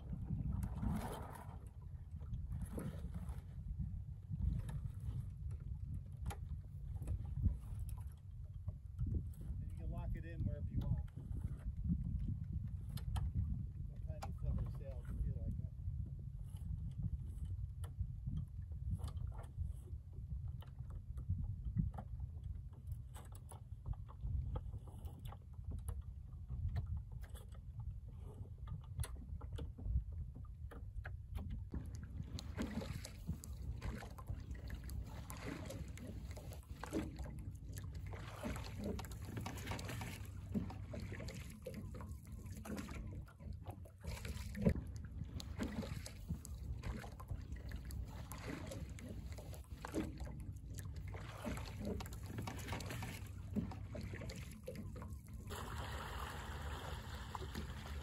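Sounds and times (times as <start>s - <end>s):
water splashing and lapping: 0.0s - 58.0s
oars clicking and knocking: 20.5s - 55.8s.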